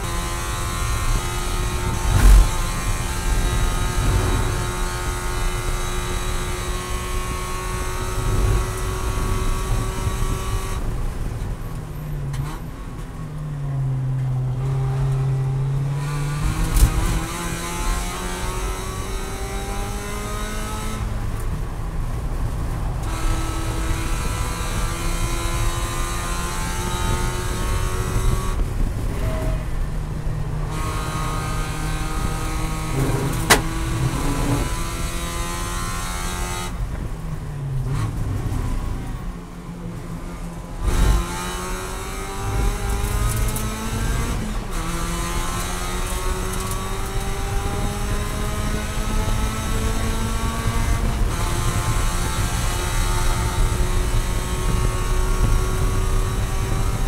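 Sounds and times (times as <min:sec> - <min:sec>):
race car engine revving: 0:00.0 - 0:10.8, 0:23.0 - 0:36.8, 0:40.3 - 0:57.0.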